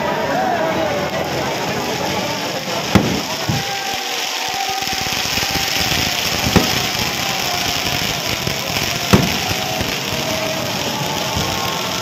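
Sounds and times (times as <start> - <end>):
constant hiss: 0.8 - 12.0
firework shells bursting: 2.6 - 12.0.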